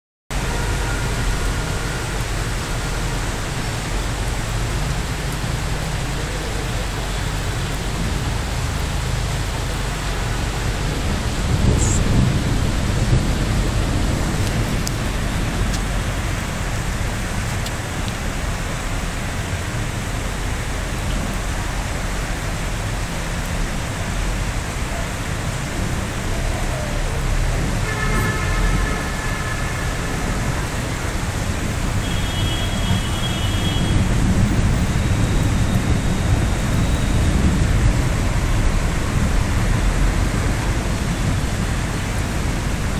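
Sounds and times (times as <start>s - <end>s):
thunder rumbling: 0.3s - 42.9s
rain falling: 0.4s - 42.9s.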